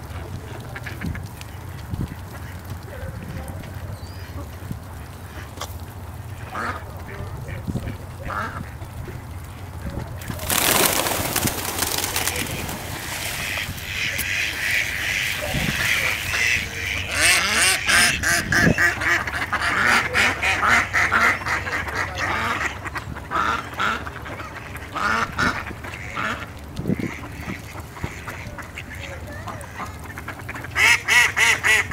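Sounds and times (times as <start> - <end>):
mallards quacking: 0.3 - 31.9
pigeon wingbeats: 9.2 - 17.6.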